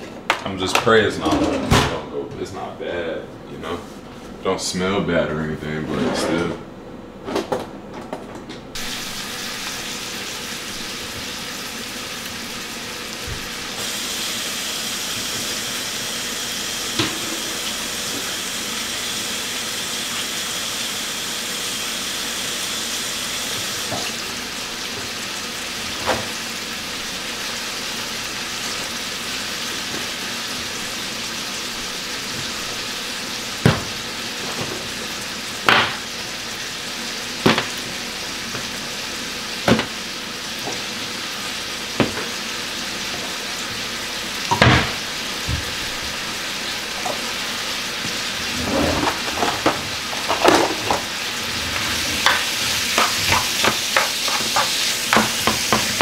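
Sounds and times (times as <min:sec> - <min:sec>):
chicken sizzling in frying pan: 0:08.8 - 0:56.0.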